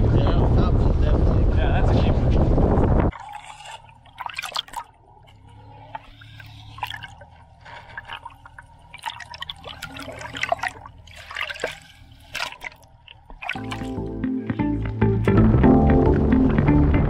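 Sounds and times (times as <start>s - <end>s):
water trickling and dripping: 3.1s - 15.4s.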